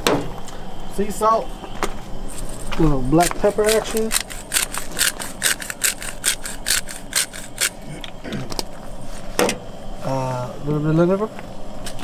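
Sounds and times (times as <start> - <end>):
pepper grinder clicking: 3.2 - 7.8.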